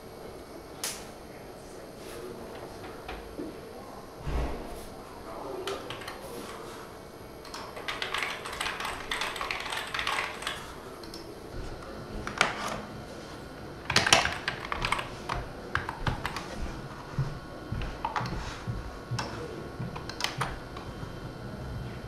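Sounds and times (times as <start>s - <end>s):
typing on computer keyboard: 5.6s - 6.6s, 7.4s - 11.3s, 13.9s - 16.5s, 20.0s - 20.5s.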